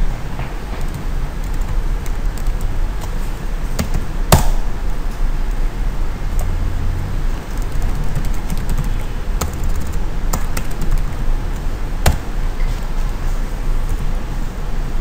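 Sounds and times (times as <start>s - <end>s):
low background hum: 0.0s - 15.0s
keyboard keys clicking: 0.4s - 3.2s, 3.8s - 4.4s, 7.3s - 12.3s.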